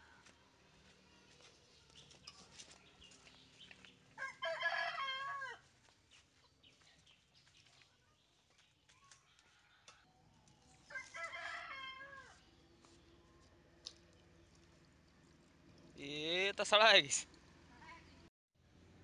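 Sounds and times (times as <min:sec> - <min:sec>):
rooster crowing: 0:04.2 - 0:05.6, 0:10.9 - 0:12.4.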